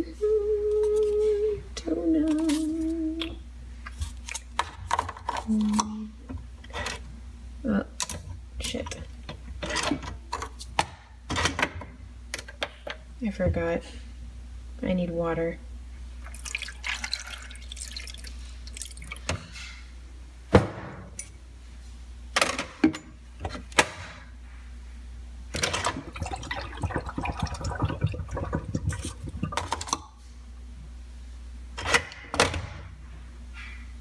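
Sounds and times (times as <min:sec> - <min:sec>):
water pouring and gurgling: 0:16.2 - 0:19.3, 0:25.7 - 0:30.0.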